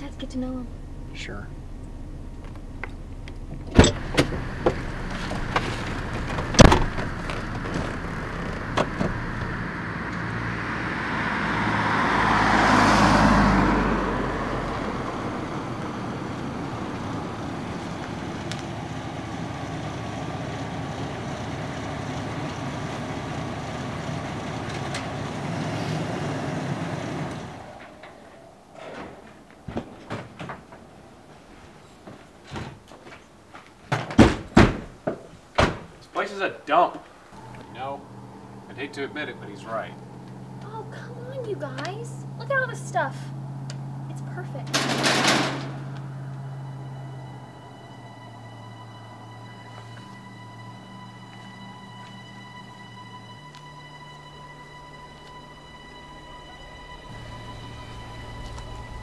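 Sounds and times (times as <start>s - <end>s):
car engine running: 0.0s - 32.3s, 36.7s - 59.0s.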